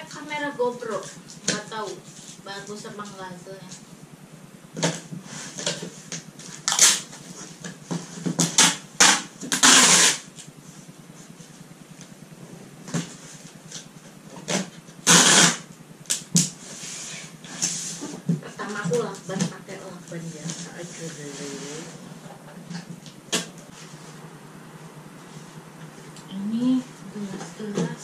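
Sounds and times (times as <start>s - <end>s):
packing tape pulled: 6.6s - 7.1s, 8.4s - 10.2s, 14.5s - 16.2s.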